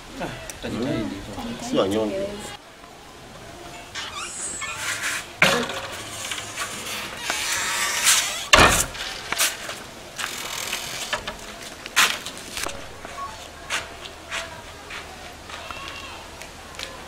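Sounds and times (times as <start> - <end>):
steady background hiss: 0.0 - 17.0
scattered knocks and scuffing: 5.4 - 15.6.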